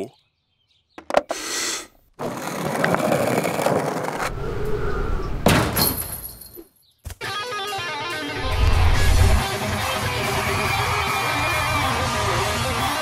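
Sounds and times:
electric guitar playing: 0:07.2 - 0:13.0
long rushing noise: 0:08.4 - 0:09.5
loud crash: 0:08.4 - 0:09.5.

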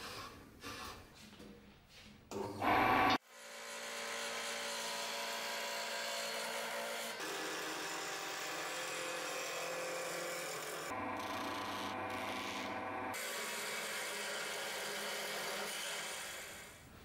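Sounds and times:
chisel cutting spinning wood: 0:03.5 - 0:16.8
lathe motor running: 0:10.9 - 0:13.2.

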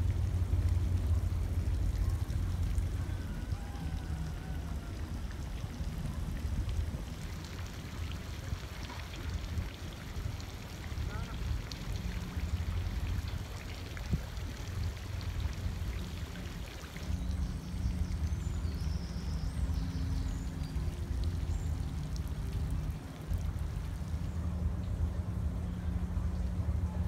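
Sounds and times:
water splashing and pouring: 0:00.0 - 0:25.4.

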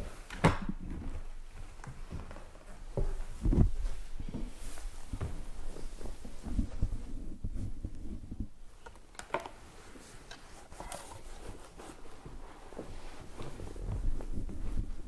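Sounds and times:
soft knocks and rubbing: 0:01.9 - 0:08.6.

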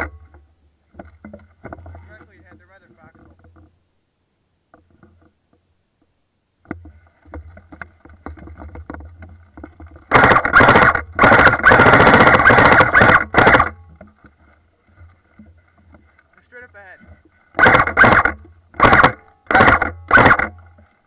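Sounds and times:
faint rustling: 0:00.0 - 0:10.1, 0:13.7 - 0:17.6
airsoft rifle automatic fire: 0:10.1 - 0:13.8, 0:17.6 - 0:20.6.

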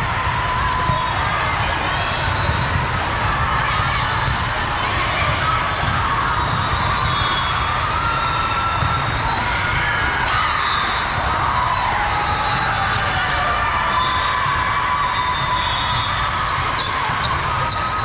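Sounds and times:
crowd of voices in a hall: 0:00.0 - 0:18.0
balls struck and bouncing: 0:02.5 - 0:04.6, 0:05.3 - 0:07.3.

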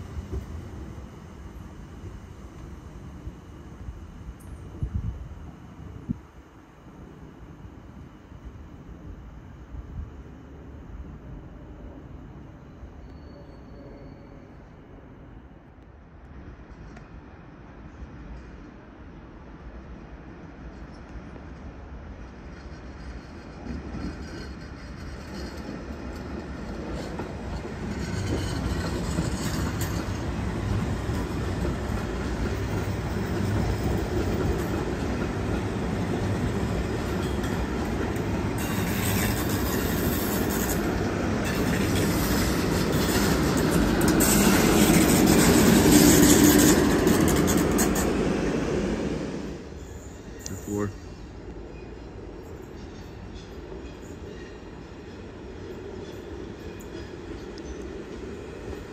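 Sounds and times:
train wheels rumbling: 0:22.2 - 0:58.9.

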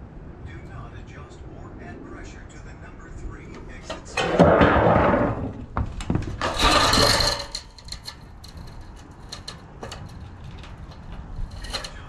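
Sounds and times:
metal gutter scraping and rattling: 0:03.6 - 0:12.0
light clicks of thin metal: 0:07.3 - 0:12.0.

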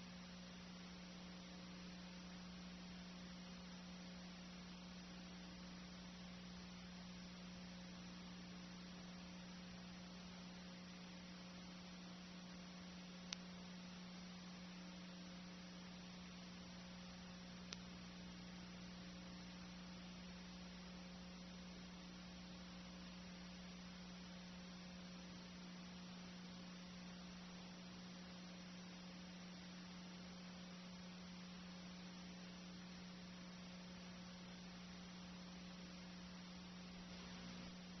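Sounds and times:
faint hiss: 0:00.0 - 0:38.0
low electrical hum: 0:00.0 - 0:38.0
small clicks: 0:17.6 - 0:17.9.

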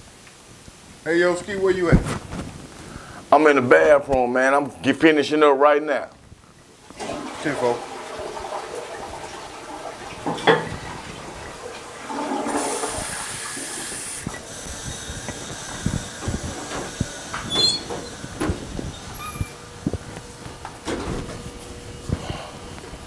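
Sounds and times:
toilet flushing: 0:06.8 - 0:21.6.

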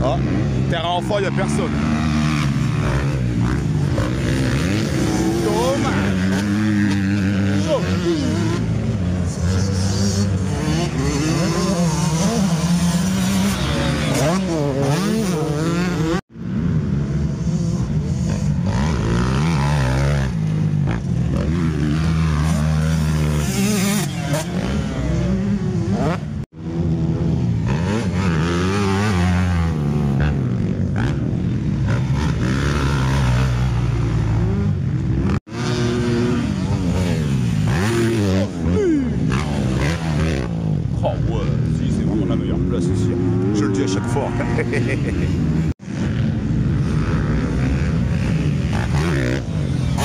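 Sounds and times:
dirt bike engines revving: 0:00.0 - 0:50.0.

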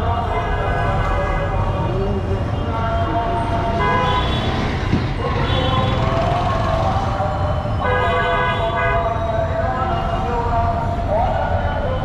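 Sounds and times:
street traffic engines: 0:00.0 - 0:12.0
vehicle horns honking: 0:03.7 - 0:06.0, 0:07.8 - 0:09.2.

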